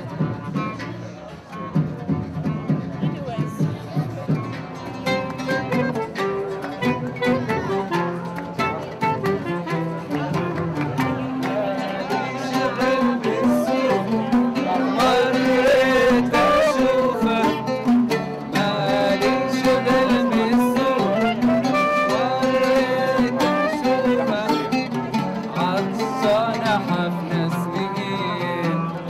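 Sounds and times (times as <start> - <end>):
ouds and acoustic guitar plucked: 0.0 - 29.0
man singing: 10.2 - 29.0.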